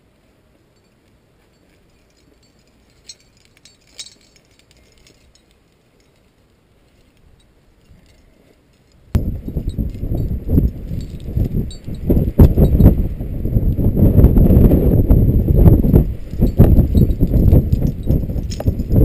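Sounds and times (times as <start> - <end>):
climbing gear clinking: 0.7 - 13.0, 15.8 - 19.0.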